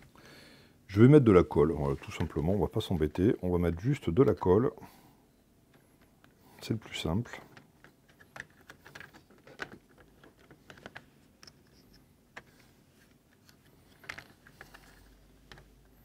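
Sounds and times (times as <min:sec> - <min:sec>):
plastic parts clicking: 0:07.3 - 0:12.5, 0:13.3 - 0:16.0.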